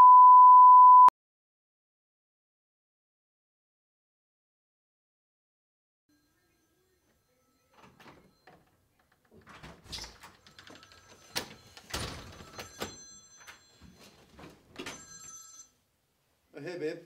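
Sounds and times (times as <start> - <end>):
phone ringtone: 6.1 - 8.6, 10.4 - 15.8.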